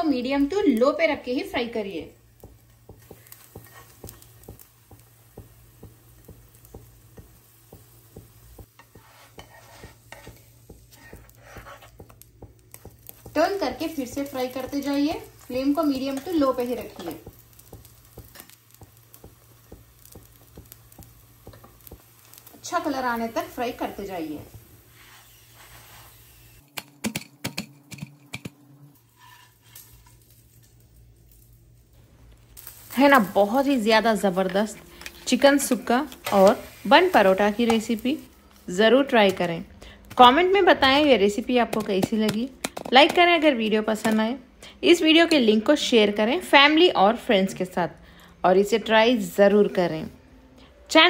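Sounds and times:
oil sizzling with crackles: 0.0s - 26.7s, 28.9s - 47.4s
spatula scraping pan: 3.1s - 4.4s, 8.8s - 12.2s, 29.0s - 30.1s.

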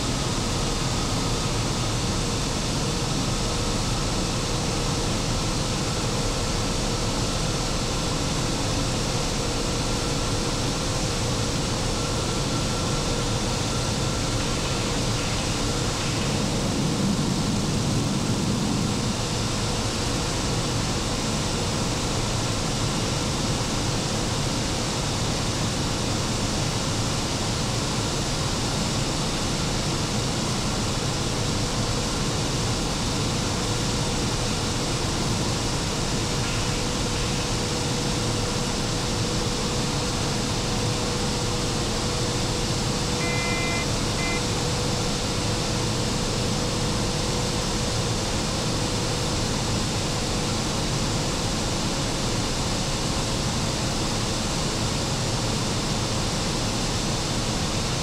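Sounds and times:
short high tone: 43.2s - 44.6s.

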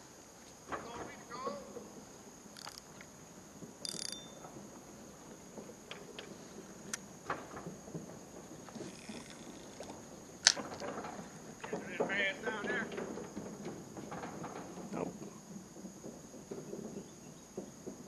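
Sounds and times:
insects droning: 0.0s - 18.0s
sharp clicks and ticks: 2.6s - 3.1s, 3.8s - 4.4s.

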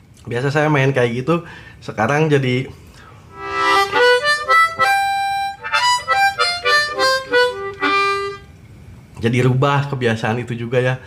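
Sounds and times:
harmonica playing: 3.3s - 8.5s.

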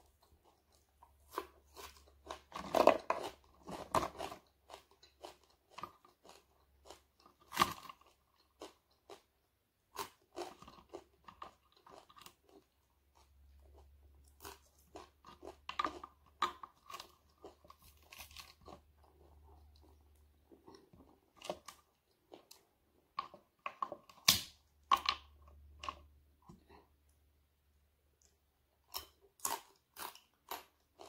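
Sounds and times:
crunchy chewing: 0.0s - 9.3s, 9.9s - 24.4s.

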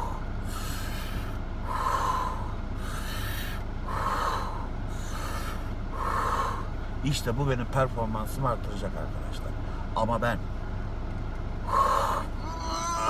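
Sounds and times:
man breathing hard: 0.0s - 7.0s, 11.6s - 12.6s.

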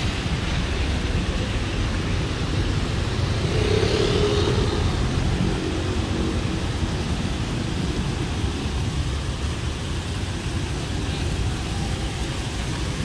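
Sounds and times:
passing engine hum: 0.0s - 9.4s
traffic rumble: 0.0s - 13.0s.

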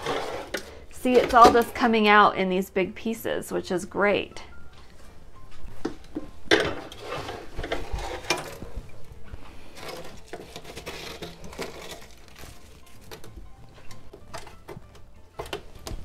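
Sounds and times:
ice crunching and scraping: 0.0s - 1.4s, 6.8s - 13.3s.

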